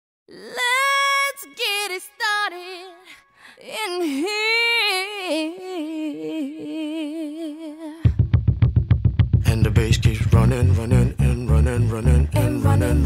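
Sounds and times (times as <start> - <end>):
woman singing unaccompanied: 0.3 - 8.1, 12.4 - 13.0.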